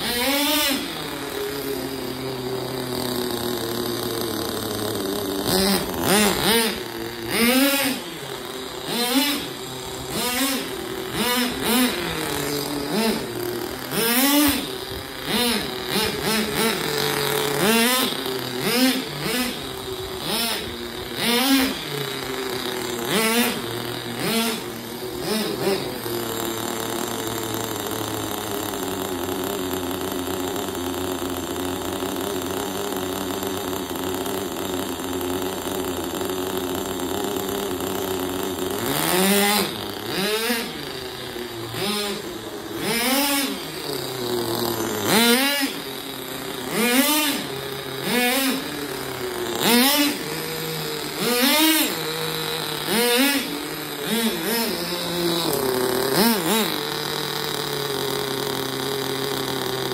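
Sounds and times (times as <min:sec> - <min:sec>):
model car engine revving: 0:00.0 - 0:59.9.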